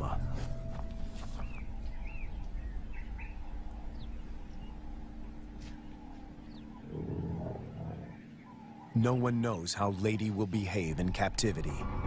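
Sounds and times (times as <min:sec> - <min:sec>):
low outdoor rumble: 0:00.0 - 0:09.0.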